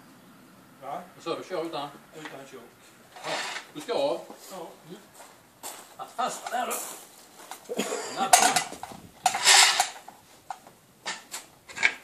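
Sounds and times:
scraping rush: 0:03.1 - 0:03.8, 0:08.6 - 0:10.0
metal clatter and knocks: 0:08.2 - 0:12.0.

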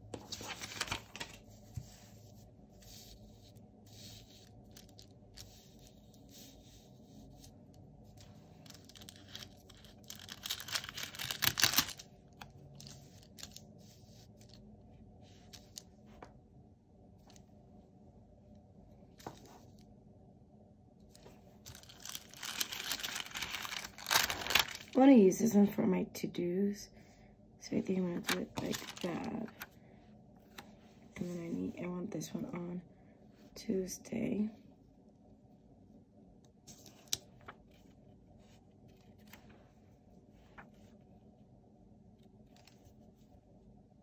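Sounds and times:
paper rustling: 0:00.0 - 0:14.6, 0:21.1 - 0:25.0, 0:28.2 - 0:29.7.

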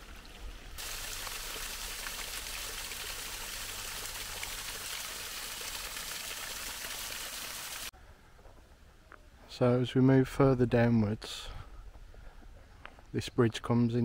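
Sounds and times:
stream water running: 0:00.0 - 0:07.9.

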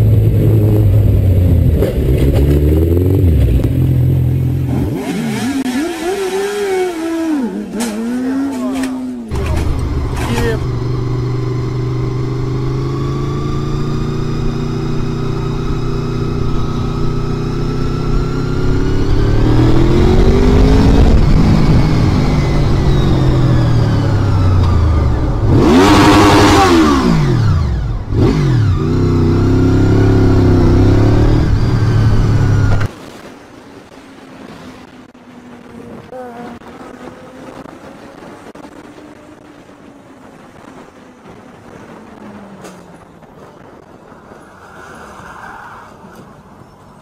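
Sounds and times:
motorcycle engine accelerating: 0:00.0 - 0:32.9.

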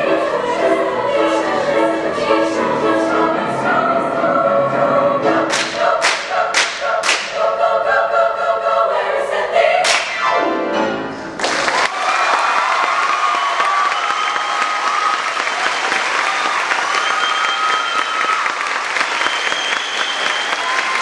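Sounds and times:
choir singing gospel: 0:00.0 - 0:11.1.

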